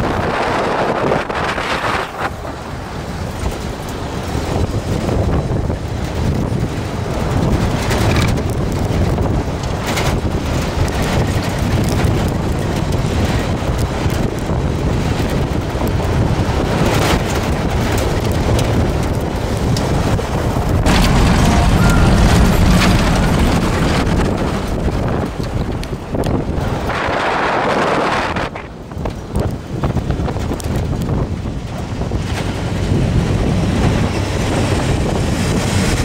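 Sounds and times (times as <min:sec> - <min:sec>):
vehicle engine and tyres rumbling: 0:00.0 - 0:36.0
wind buffeting microphone: 0:00.0 - 0:36.0
vehicle knocking over bumps: 0:20.6 - 0:26.6.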